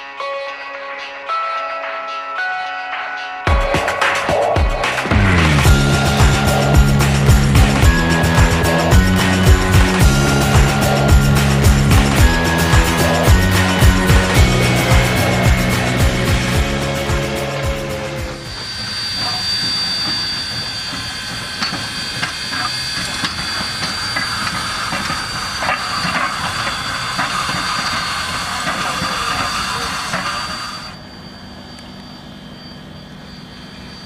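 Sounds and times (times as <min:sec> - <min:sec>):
steam locomotive hissing: 0:04.9 - 0:34.0
low rumble: 0:05.1 - 0:18.6
running gear and rail clicks: 0:05.6 - 0:31.0.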